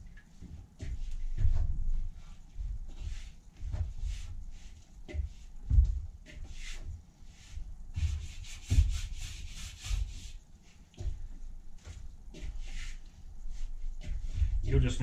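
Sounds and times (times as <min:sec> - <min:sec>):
dough rubbing in metal bowl: 0:02.0 - 0:11.0, 0:12.3 - 0:15.0.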